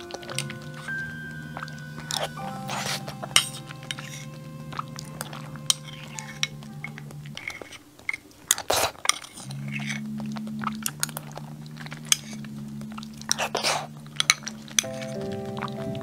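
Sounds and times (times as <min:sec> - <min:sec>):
background music low notes: 0:00.0 - 0:16.0
chewing and eating: 0:00.0 - 0:16.0
metal spoon scraping glass cup: 0:05.1 - 0:06.7.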